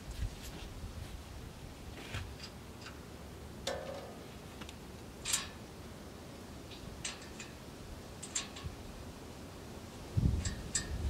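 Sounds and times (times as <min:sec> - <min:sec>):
metal clicks and clinks: 0:07.0 - 0:07.6, 0:08.2 - 0:08.7.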